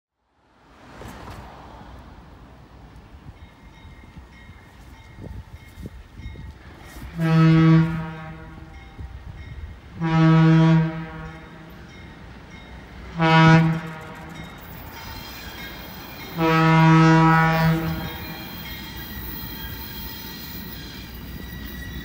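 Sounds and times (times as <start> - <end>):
train running noise: 0.8 - 22.0
locomotive air horn blasts: 7.1 - 8.8, 9.9 - 11.7, 13.1 - 21.6.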